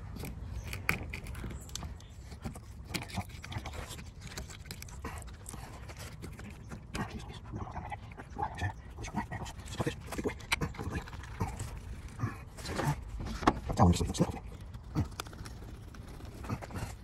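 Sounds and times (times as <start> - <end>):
knife crunching through fish bone: 0.0 - 6.9.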